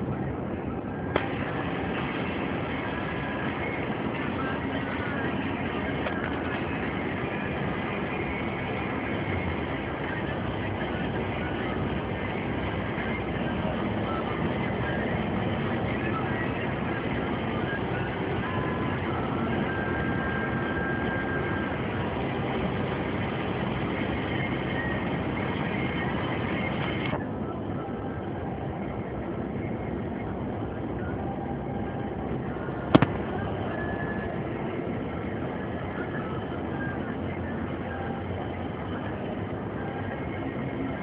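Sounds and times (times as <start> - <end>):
vehicle engine and road noise: 0.0 - 41.0
sharp click: 33.0 - 33.2.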